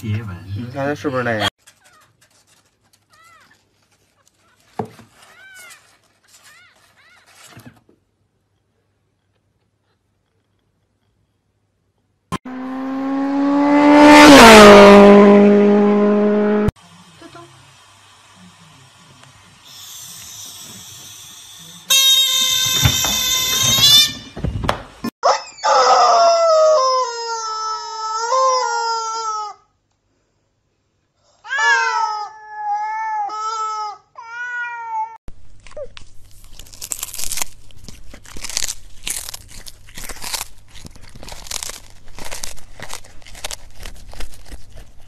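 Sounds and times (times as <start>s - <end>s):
dull thumps: 22.7s - 25.1s
shrill held cry: 25.2s - 29.7s, 31.4s - 35.2s.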